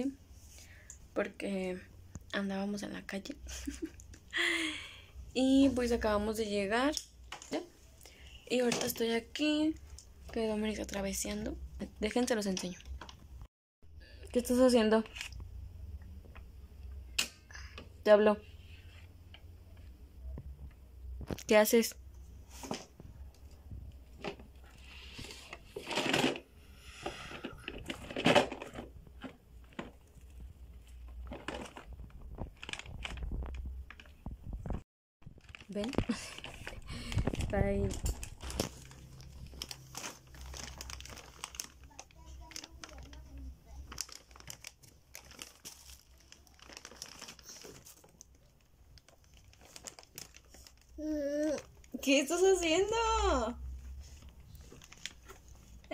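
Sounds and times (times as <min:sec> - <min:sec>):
plastic packaging crinkling: 0:27.6 - 0:53.1, 0:53.9 - 0:55.9.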